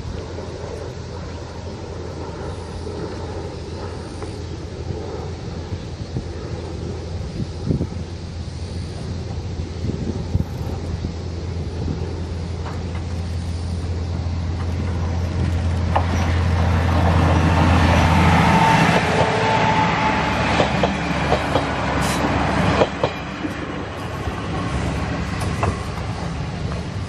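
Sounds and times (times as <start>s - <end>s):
diesel train engine drone: 0.0s - 27.0s
train wheels clicking over rail joints: 12.2s - 19.5s, 20.4s - 27.0s.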